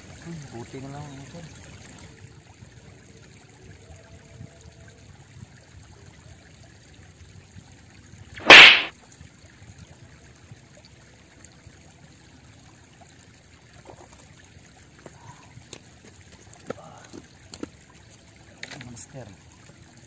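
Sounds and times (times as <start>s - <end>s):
faint river noise: 8.4s - 8.9s
fishing pole swish: 8.4s - 8.9s.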